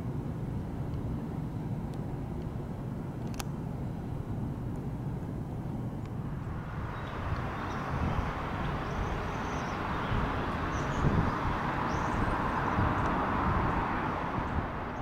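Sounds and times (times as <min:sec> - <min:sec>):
distant aircraft engine roar: 0:00.0 - 0:15.0.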